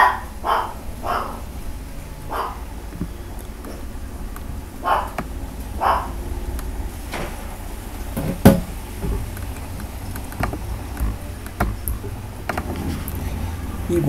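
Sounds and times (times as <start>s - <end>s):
rumble of street traffic: 0.0s - 14.0s
sharp knocks: 8.2s - 9.6s, 10.2s - 12.8s.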